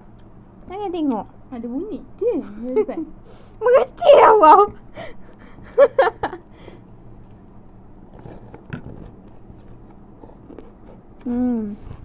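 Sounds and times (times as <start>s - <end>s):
noodles being chewed: 8.1s - 12.0s.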